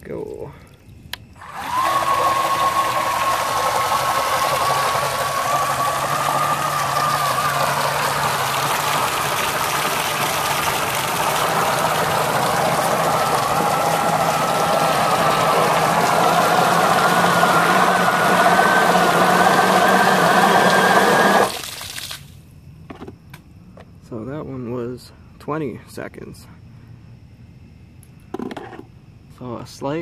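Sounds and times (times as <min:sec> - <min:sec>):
electric motor whining: 0:01.4 - 0:21.6
water spraying with rushing hiss: 0:01.4 - 0:22.4.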